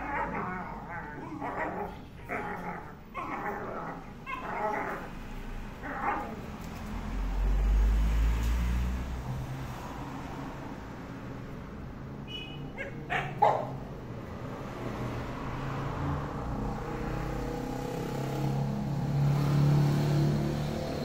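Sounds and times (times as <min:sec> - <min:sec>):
car passing: 0:00.0 - 0:21.0
street traffic hum: 0:00.0 - 0:21.0
dog barking: 0:12.7 - 0:13.9.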